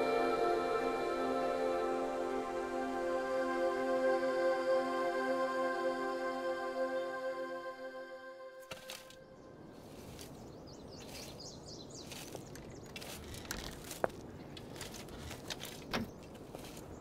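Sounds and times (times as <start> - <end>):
birds chirping: 9.0 - 17.0.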